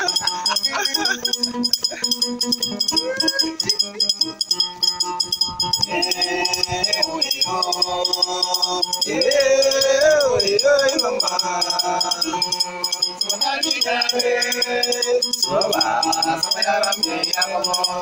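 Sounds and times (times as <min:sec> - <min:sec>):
man singing: 0:00.0 - 0:01.3, 0:05.8 - 0:18.0.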